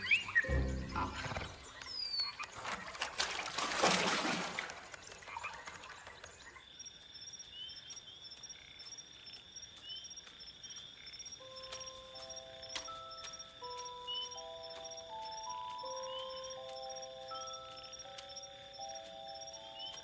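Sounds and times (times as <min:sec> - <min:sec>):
water splashing: 0:02.4 - 0:06.4
insects and frogs chorus: 0:05.0 - 0:20.0.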